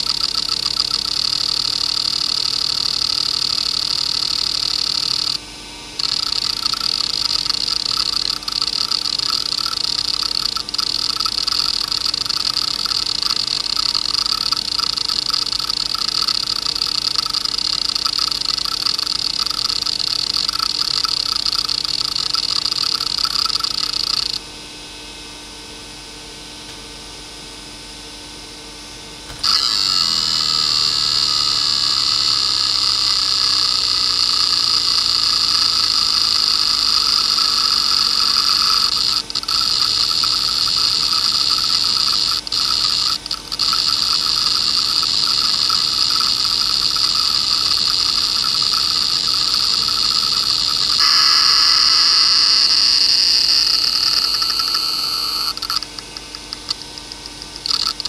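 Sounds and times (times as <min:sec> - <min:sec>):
hard drive head buzzing chatter: 0:00.0 - 0:24.5, 0:29.3 - 0:58.0
low spindle hum: 0:29.3 - 0:56.2.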